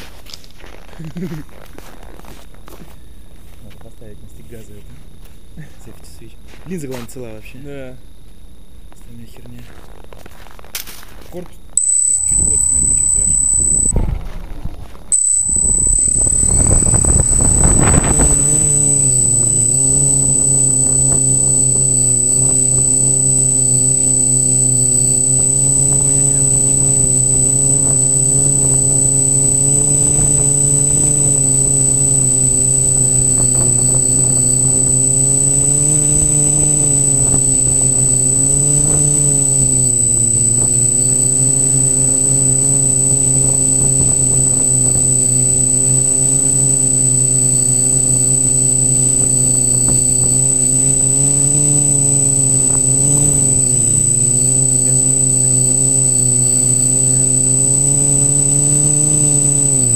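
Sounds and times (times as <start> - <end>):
drone propellers buzzing: 11.8 - 14.0, 15.1 - 59.9
high-pitched whine: 11.8 - 14.1, 15.1 - 59.9.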